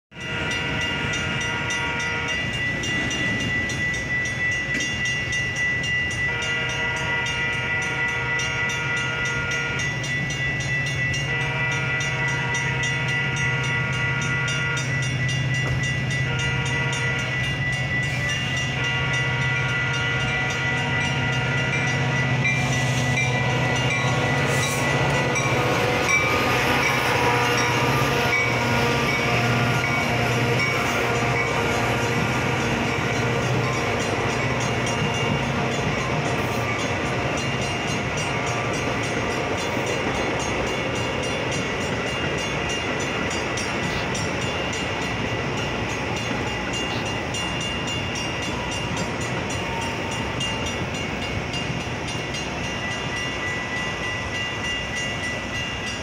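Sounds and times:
train horn blasts: 0:00.1 - 0:02.6, 0:06.1 - 0:10.0, 0:10.9 - 0:39.9
crossing bell ringing: 0:00.1 - 0:56.0
train wheels on rails: 0:00.1 - 0:56.0.

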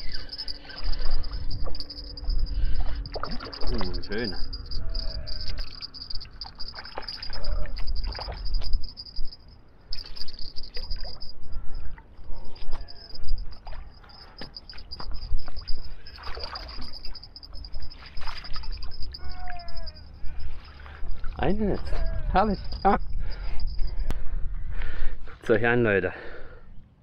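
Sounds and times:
water sloshing in landing net: 0:16.2 - 0:16.9, 0:18.0 - 0:18.5.

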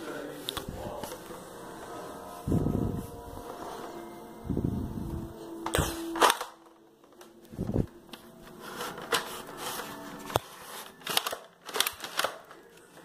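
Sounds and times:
plastic toy handling clicks: 0:05.7 - 0:06.8, 0:10.3 - 0:12.8.

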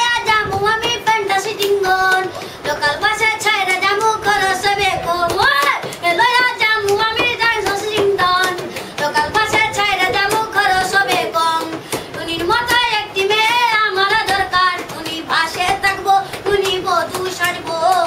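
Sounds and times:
boy singing folk song: 0:00.0 - 0:18.0.

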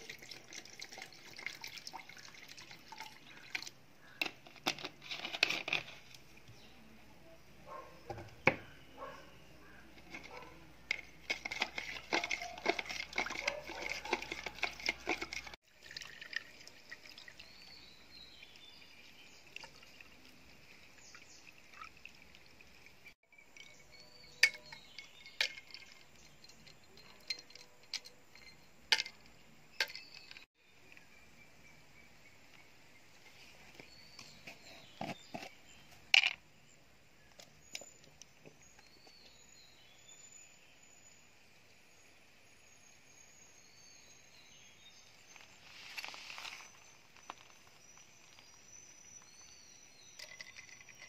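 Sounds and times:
juice pouring through strainer: 0:00.0 - 0:03.7, 0:11.5 - 0:23.1
spoon stirring in plastic jug: 0:00.0 - 0:06.6, 0:09.7 - 0:17.4, 0:23.6 - 0:30.4
ice cubes clinking in glass: 0:23.6 - 0:30.4, 0:50.0 - 0:51.0.

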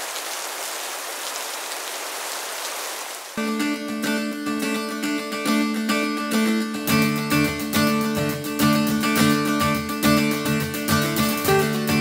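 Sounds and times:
guitar tune: 0:03.4 - 0:12.0
bass line: 0:04.7 - 0:12.0.

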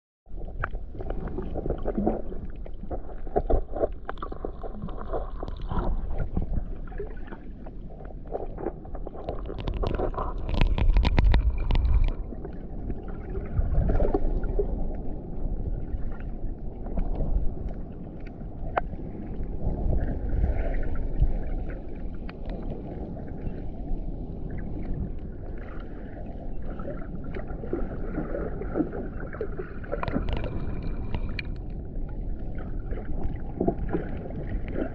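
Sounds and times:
muffled underwater water wash: 0:00.3 - 0:34.9
clicks and crackles: 0:00.6 - 0:06.6, 0:08.2 - 0:12.3, 0:29.9 - 0:31.8.

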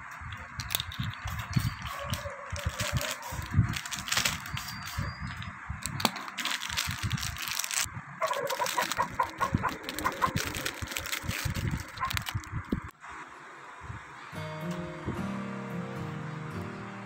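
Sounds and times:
plastic wrapping crinkling: 0:00.0 - 0:12.9.

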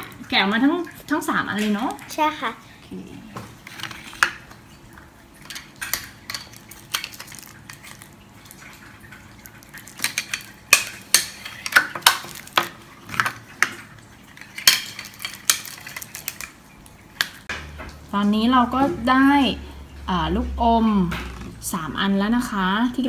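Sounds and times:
plastic packaging clicking and crackling: 0:05.4 - 0:16.6.

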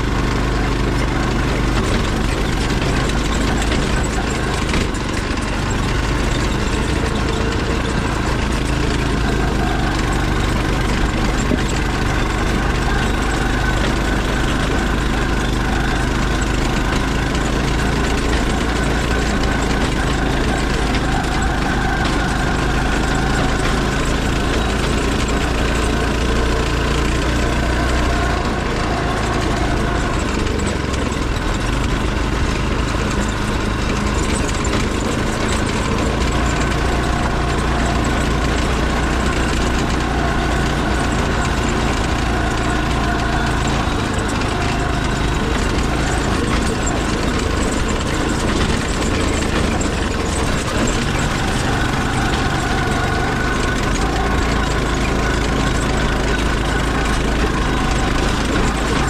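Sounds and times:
go-kart engine droning: 0:00.0 - 0:59.0.

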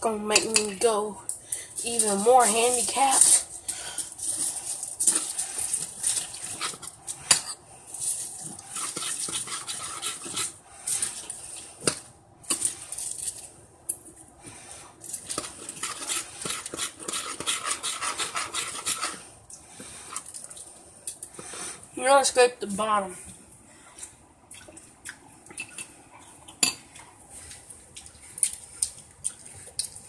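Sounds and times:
fork scraping a dish: 0:04.3 - 0:11.3, 0:15.1 - 0:19.3.

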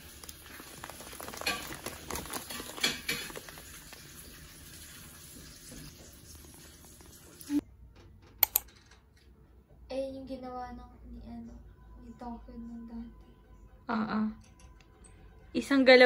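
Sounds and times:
paper bag crinkling: 0:00.0 - 0:05.2
sharp clicks: 0:08.4 - 0:08.7.

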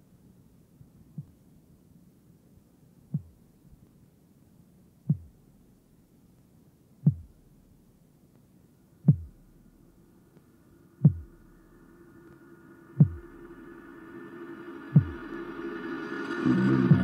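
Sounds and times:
faint low hum: 0:00.0 - 0:17.0
deep thuds dropping in pitch: 0:05.1 - 0:05.6, 0:07.1 - 0:07.8, 0:09.1 - 0:09.9, 0:11.0 - 0:11.8, 0:13.0 - 0:13.6
held droning tone: 0:09.1 - 0:17.0.

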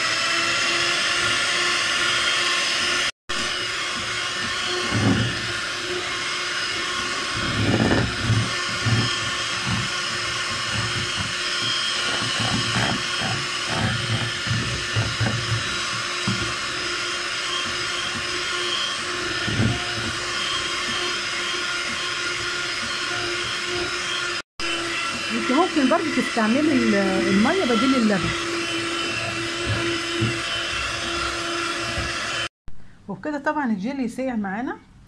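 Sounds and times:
electric hand mixer running: 0:00.0 - 0:32.5.

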